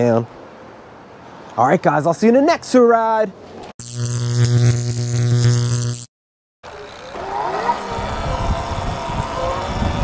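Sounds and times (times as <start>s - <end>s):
electric motor whining: 3.8s - 6.1s, 6.7s - 10.0s
wind noise on microphone: 7.6s - 10.0s.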